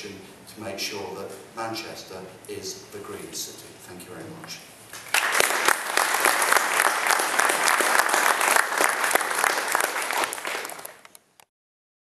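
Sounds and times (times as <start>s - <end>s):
audience applauding: 5.0s - 11.1s.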